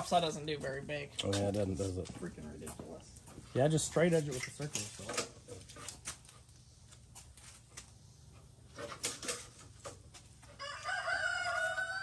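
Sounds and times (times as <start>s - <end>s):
rooster crowing: 10.6s - 12.0s.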